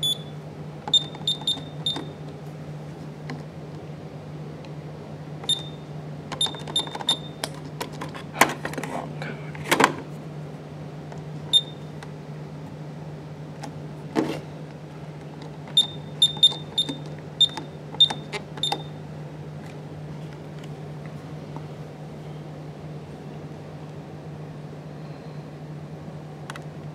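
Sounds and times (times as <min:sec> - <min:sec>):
alarm keypad beeps: 0:00.0 - 0:02.2, 0:05.4 - 0:05.8, 0:06.4 - 0:07.4, 0:11.5 - 0:11.9, 0:15.8 - 0:19.0.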